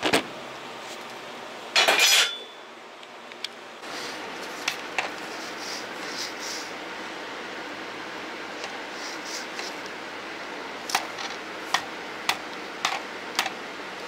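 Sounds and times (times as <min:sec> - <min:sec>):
room hum: 0:00.0 - 0:14.0
metal tools clinking: 0:01.8 - 0:02.6.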